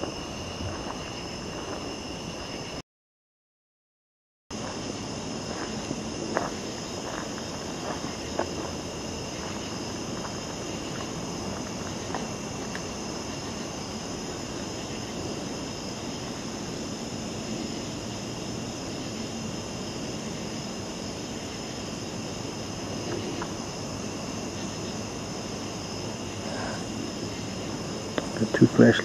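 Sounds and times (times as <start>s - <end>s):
crickets trilling: 0.0s - 2.8s, 4.5s - 29.0s
footsteps on forest path: 4.6s - 12.8s.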